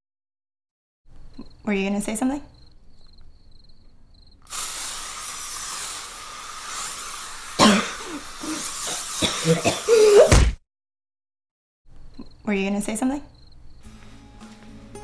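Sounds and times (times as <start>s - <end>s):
aerosol spray can hissing: 4.4s - 10.2s
woman coughing and spluttering: 7.6s - 10.4s.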